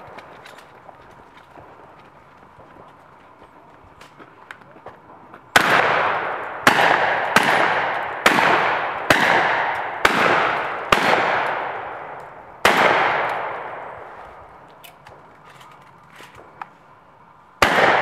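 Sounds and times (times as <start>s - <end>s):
pistol shots echoing: 5.5s - 14.1s, 17.6s - 18.0s.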